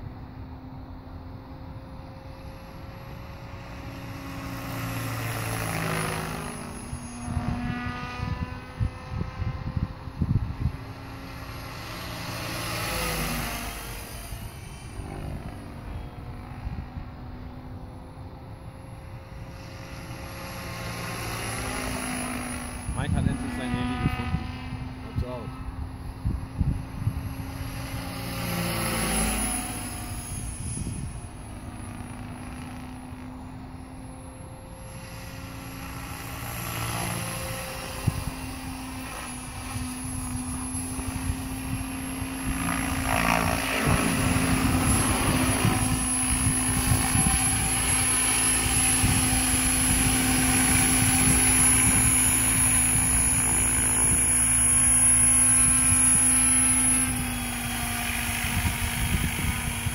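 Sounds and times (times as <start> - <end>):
rc helicopter motor whine: 0.0 - 59.9
rotor hum: 0.0 - 59.9.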